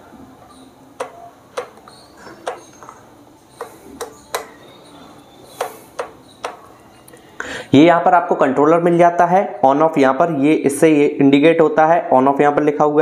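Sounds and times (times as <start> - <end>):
plastic thermostat knob clicks: 1.0 - 2.9, 5.6 - 6.7.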